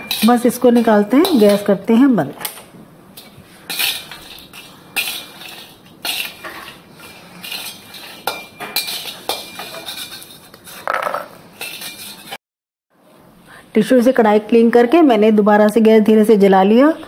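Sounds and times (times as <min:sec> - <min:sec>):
metal skimmer scraping a pan: 0:00.0 - 0:01.8, 0:03.2 - 0:12.4.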